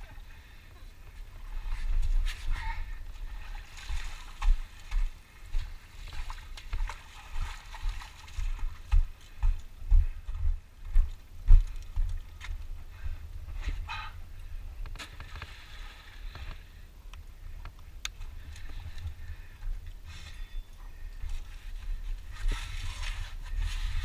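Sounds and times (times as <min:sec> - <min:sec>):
footsteps through shallow water: 0:01.0 - 0:13.9, 0:14.8 - 0:24.0
water sloshing and splashing: 0:01.4 - 0:09.2, 0:14.9 - 0:16.9.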